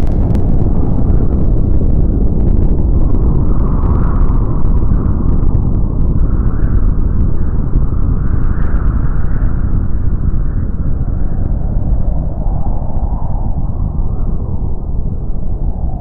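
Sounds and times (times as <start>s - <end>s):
loud low rumbling: 0.0s - 16.0s.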